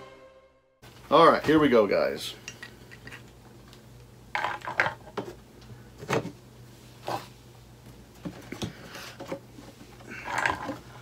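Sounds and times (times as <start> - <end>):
plastic parts clattering on table: 4.4 - 5.4, 10.2 - 10.8.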